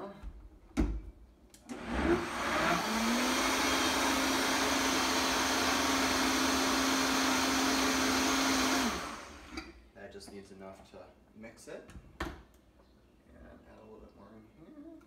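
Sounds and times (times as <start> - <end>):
blender motor running: 1.7 - 9.6.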